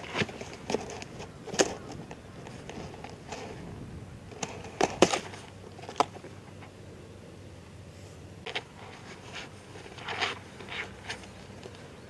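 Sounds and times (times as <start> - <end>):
cardboard box crackling and scraping: 8.5 - 11.5.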